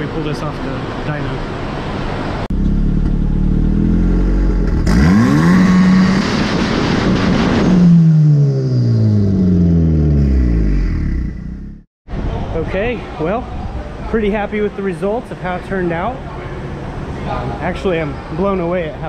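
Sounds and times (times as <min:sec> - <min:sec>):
turbocharged engine revving: 0:02.5 - 0:11.9.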